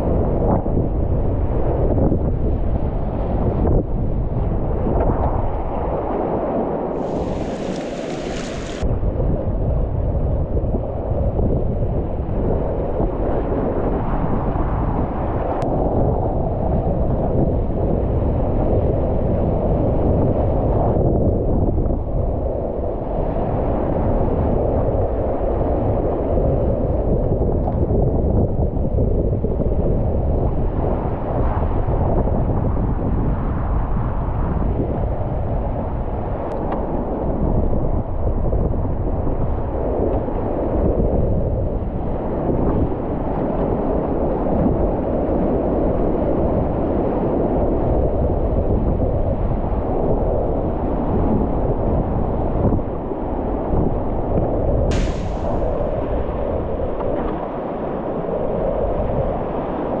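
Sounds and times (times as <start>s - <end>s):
wind rumble on microphone: 0.0s - 60.0s
water splashing hiss: 7.0s - 8.8s, 54.9s - 56.4s
whitewater rapids rushing: 7.0s - 8.8s.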